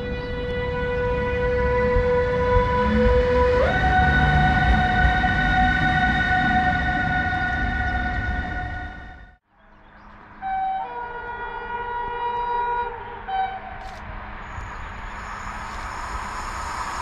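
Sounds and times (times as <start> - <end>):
train horn: 0.0 - 9.3, 10.4 - 13.8
train rumbling on track: 0.0 - 9.4.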